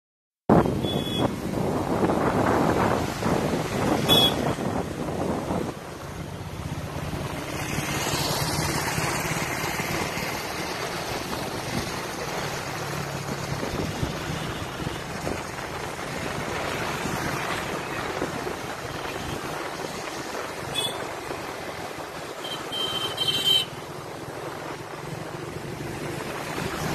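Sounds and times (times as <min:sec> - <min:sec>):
wind noise on microphone: 0:00.5 - 0:22.3, 0:26.0 - 0:26.9
motorcycle engine cruising: 0:00.9 - 0:18.8.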